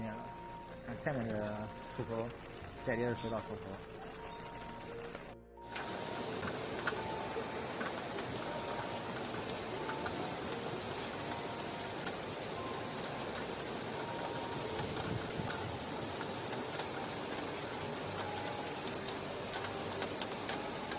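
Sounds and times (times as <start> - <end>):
floodwater rushing: 5.0 - 20.9.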